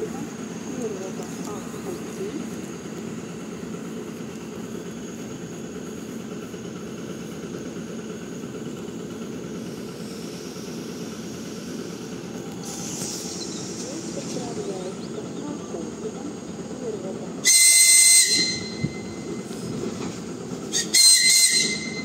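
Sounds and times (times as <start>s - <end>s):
train equipment humming: 0.0s - 22.0s
sharp air hiss: 9.4s - 14.4s.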